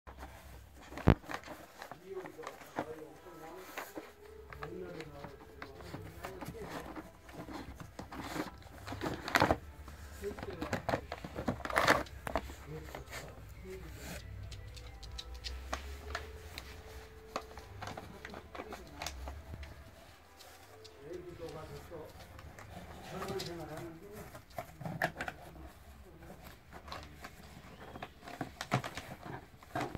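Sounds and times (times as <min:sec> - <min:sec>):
dog rummaging in cardboard box: 0:00.1 - 0:14.2, 0:16.2 - 0:29.9
dog nosing cardboard box: 0:05.7 - 0:14.2.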